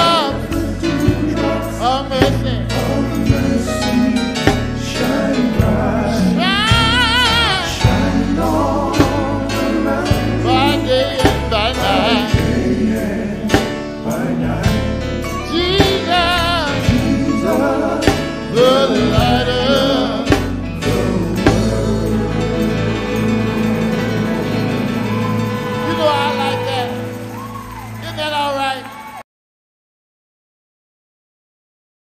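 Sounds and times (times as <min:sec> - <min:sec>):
man singing with vibrato: 0:00.0 - 0:27.1
electric guitar: 0:00.0 - 0:28.1
bass guitar: 0:00.0 - 0:29.2
drum beat: 0:00.9 - 0:09.4, 0:10.1 - 0:12.8, 0:15.6 - 0:27.6.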